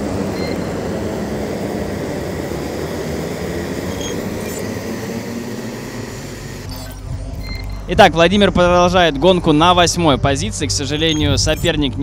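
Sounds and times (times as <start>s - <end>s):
kart engines running: 0.0s - 12.0s.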